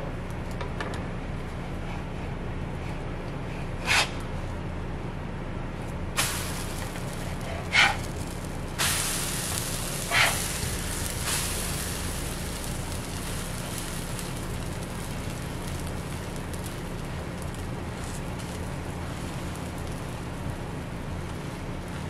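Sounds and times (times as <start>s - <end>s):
batter sizzling on griddle: 6.2s - 22.0s
spatula scraping griddle: 7.1s - 13.9s.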